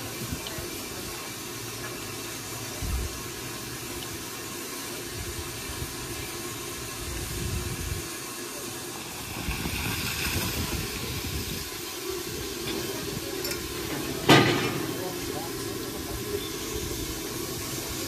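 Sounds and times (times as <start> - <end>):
steam locomotive hissing: 0.0 - 18.0
water gushing onto drain: 8.9 - 18.0.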